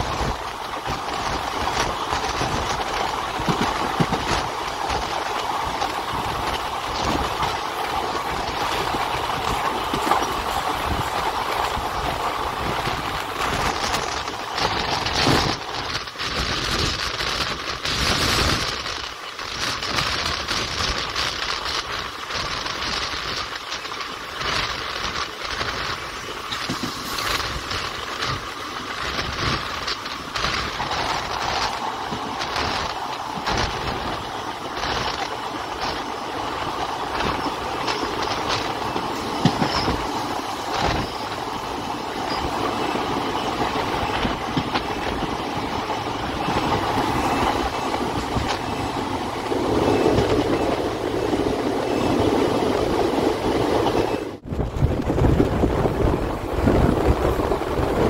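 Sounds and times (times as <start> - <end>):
train wheels rolling on rails: 0.0 - 58.0.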